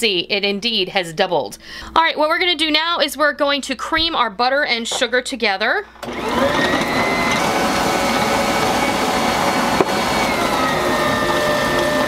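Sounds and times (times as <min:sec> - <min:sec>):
mixer knock: 0:06.0 - 0:12.0
stand mixer motor whining: 0:06.0 - 0:12.0.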